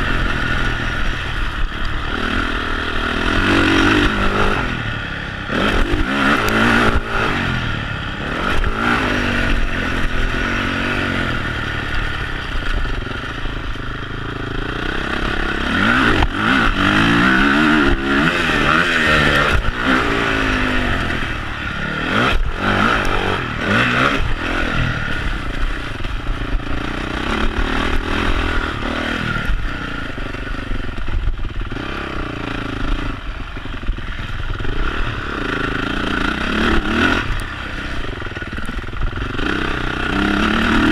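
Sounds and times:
motocross bike revving: 0:00.0 - 0:40.9.

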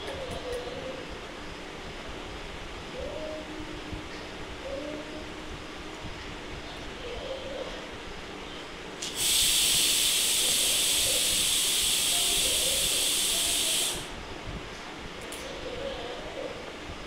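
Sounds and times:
loud steady hiss: 0:09.0 - 0:14.4.

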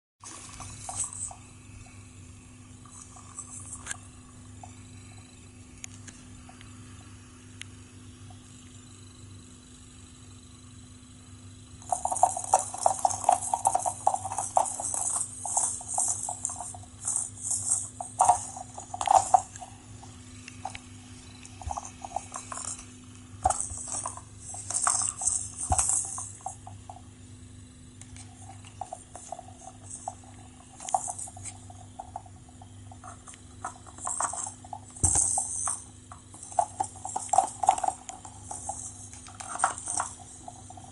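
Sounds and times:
cats batting scratching toy: 0:00.2 - 0:02.0, 0:02.8 - 0:04.8, 0:11.8 - 0:27.1, 0:28.0 - 0:40.9
balls rattling inside toy: 0:00.2 - 0:05.2, 0:11.8 - 0:27.2, 0:28.0 - 0:40.9.

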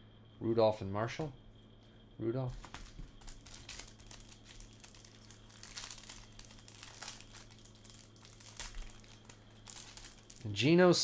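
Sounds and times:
plastic wrapper crinkling and tearing: 0:02.6 - 0:10.6.

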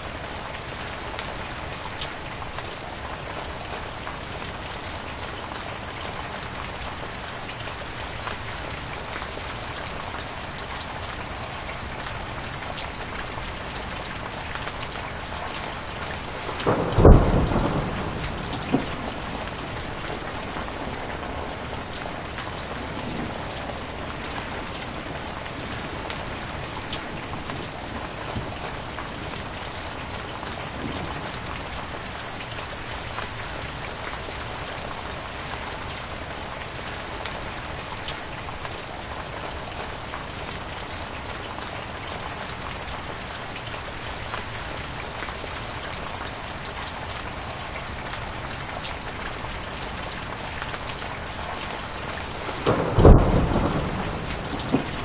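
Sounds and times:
heavy rain: 0:00.0 - 0:55.0
raindrop hits: 0:12.2 - 0:32.5, 0:49.8 - 0:55.0.

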